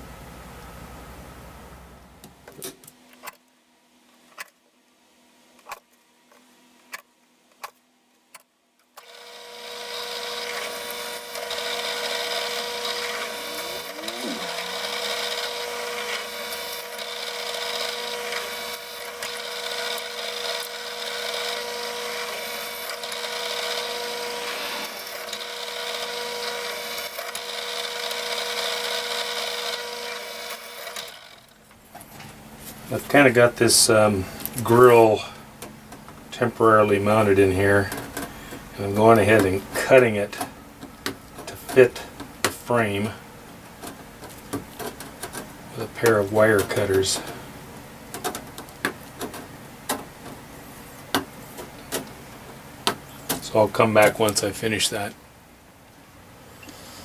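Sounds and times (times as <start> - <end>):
drill press humming and whining: 9.0 - 31.8.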